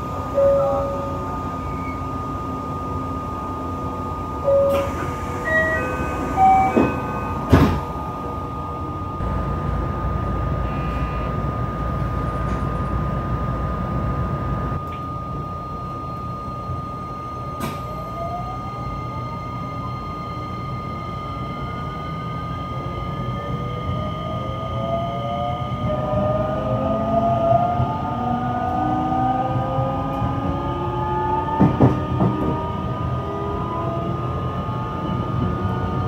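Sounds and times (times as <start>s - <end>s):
train door chime tones: 0.0s - 9.2s, 14.8s - 26.2s
train equipment hum: 0.0s - 36.0s
sliding doors closing knocks: 6.6s - 7.9s.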